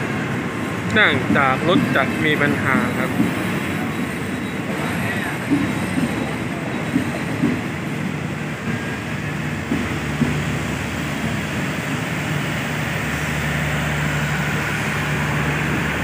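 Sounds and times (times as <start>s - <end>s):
train rolling noise: 0.0s - 16.0s
train wheels knocking over rail joints: 0.8s - 13.3s.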